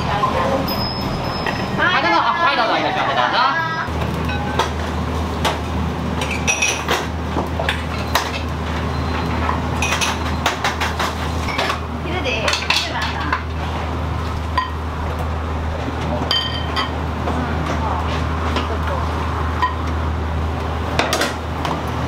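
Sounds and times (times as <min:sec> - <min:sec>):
utensils and dishes clinking: 0:00.0 - 0:02.1, 0:04.2 - 0:05.6, 0:06.2 - 0:18.8
steady low hum: 0:10.7 - 0:22.0.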